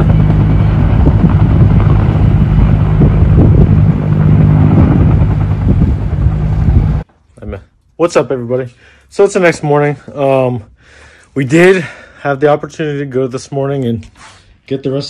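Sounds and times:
helicopter flying close by: 0:00.0 - 0:07.0.

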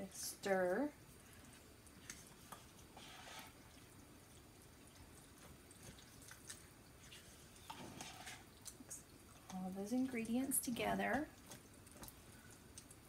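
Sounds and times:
wet stirring with spatula: 0:00.0 - 0:13.0.

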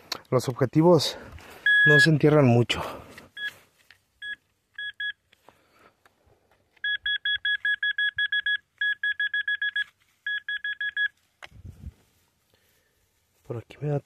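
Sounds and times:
metal detector beeping: 0:01.6 - 0:02.3, 0:03.3 - 0:03.6, 0:04.2 - 0:05.3, 0:06.8 - 0:11.2.

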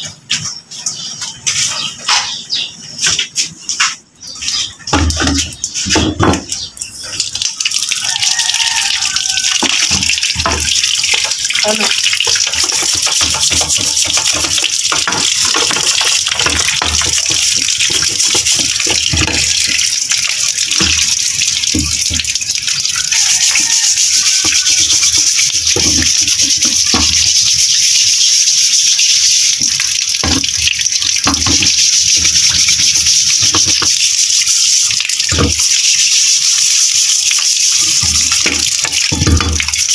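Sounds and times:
water pouring and splashing: 0:00.0 - 0:39.9.

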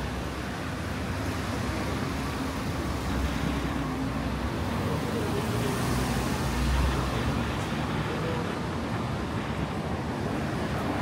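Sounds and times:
city street traffic: 0:00.0 - 0:11.0.

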